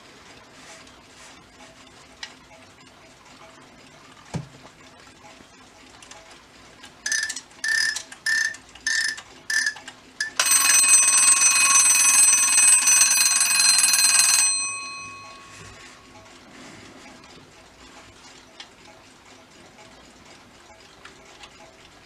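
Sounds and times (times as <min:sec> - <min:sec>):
alarm clock bell ringing: 0:07.1 - 0:16.1.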